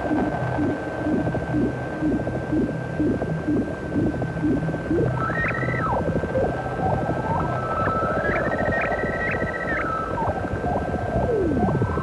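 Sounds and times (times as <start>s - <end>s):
low synthesizer pulses: 0.0s - 12.0s
whale-like synth call: 4.9s - 12.0s.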